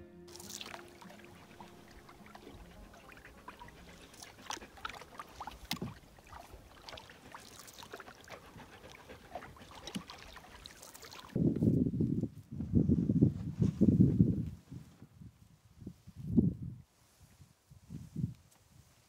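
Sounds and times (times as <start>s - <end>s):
paddle splashes and drips: 0.3s - 11.4s.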